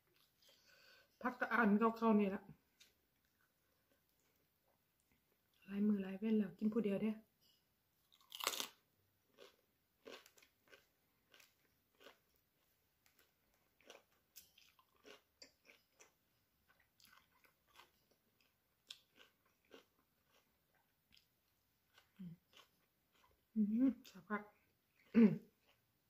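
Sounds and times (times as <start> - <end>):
person chewing food: 0.0 - 0.9, 2.7 - 5.6, 8.0 - 23.5, 24.6 - 26.0.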